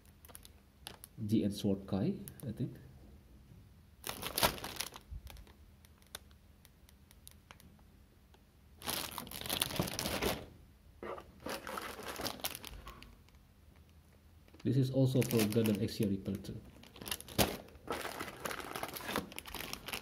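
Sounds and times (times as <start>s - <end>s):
plastic bags crinkling: 4.0s - 6.3s, 8.8s - 10.5s, 11.1s - 13.4s, 14.5s - 20.0s.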